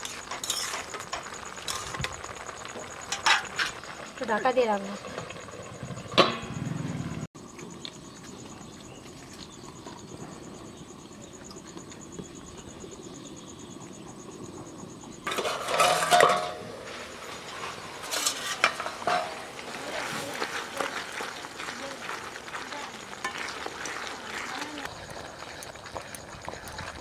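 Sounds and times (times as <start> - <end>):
lid clattering against pot: 15.3 - 16.6
metal lid clinking on pot: 15.3 - 16.6, 18.1 - 19.5.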